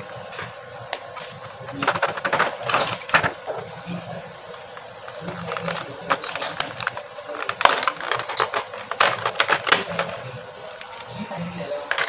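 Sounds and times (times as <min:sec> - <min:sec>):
wooden pencils clattering: 0:05.1 - 0:11.3.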